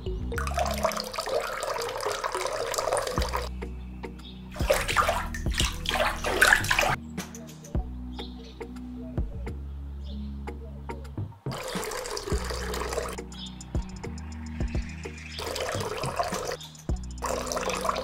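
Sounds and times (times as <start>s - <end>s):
water splashing into trough: 0.4s - 3.5s, 4.6s - 7.0s, 11.5s - 13.2s, 15.4s - 16.6s, 17.2s - 18.0s.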